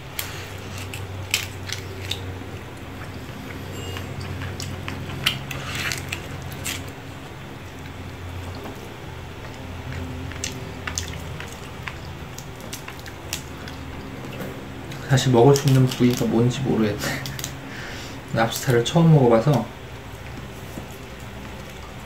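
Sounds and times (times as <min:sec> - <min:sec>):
steady low hum: 0:00.0 - 0:22.0
lobster shell wet squishing: 0:09.5 - 0:18.7.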